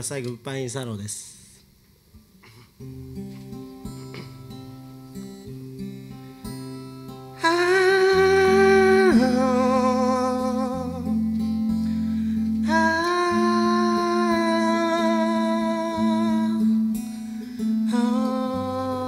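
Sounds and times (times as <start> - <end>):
strummed acoustic guitars: 2.4 - 19.0
person singing: 7.4 - 19.0.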